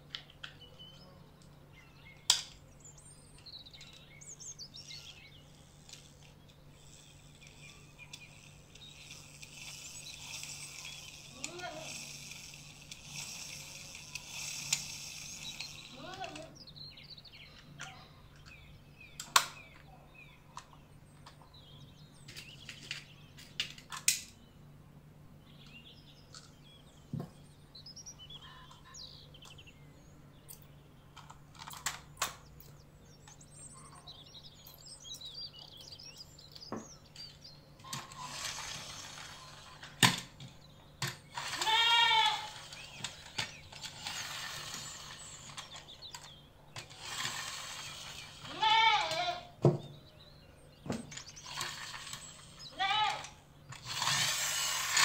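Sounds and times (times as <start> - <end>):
steady hiss: 4.2 - 16.0
goat bleating: 11.3 - 12.2, 15.8 - 16.6, 41.4 - 42.6, 48.4 - 49.6, 52.7 - 53.4.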